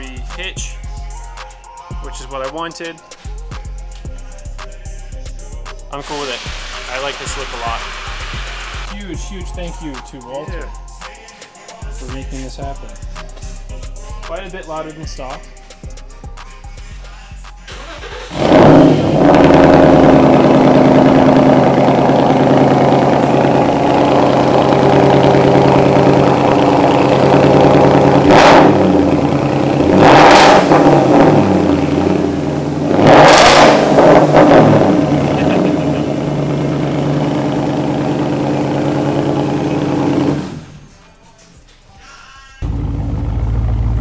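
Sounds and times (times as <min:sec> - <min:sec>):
car engine starting and idling: 0:17.6 - 0:40.8, 0:42.6 - 0:44.0
engine revving: 0:17.7 - 0:40.8.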